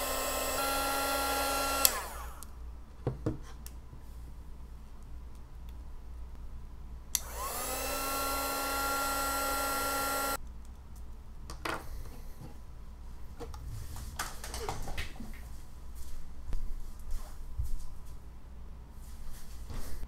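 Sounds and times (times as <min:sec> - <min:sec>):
heat gun fan whining: 0:00.0 - 0:02.6, 0:07.1 - 0:10.4.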